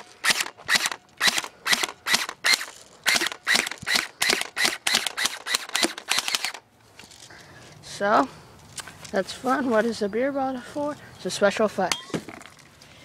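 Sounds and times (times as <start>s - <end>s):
airsoft rifle firing shots: 0.0s - 6.6s.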